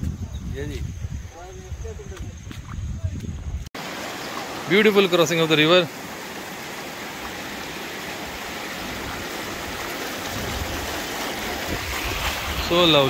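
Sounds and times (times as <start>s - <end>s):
river rushing over stones: 3.8s - 13.0s.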